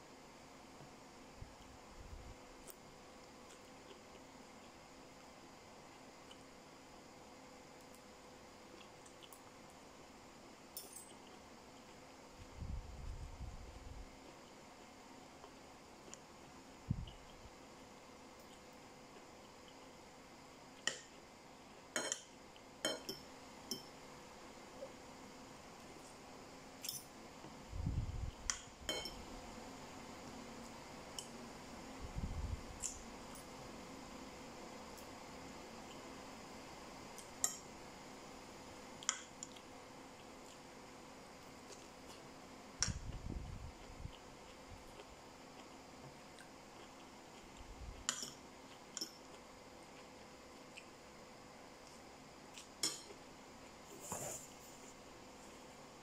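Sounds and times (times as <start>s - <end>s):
low rumble of handling or chewing: 11.2s - 17.6s
cutlery clinking on ceramic bowl: 22.0s - 23.9s, 28.9s - 29.2s.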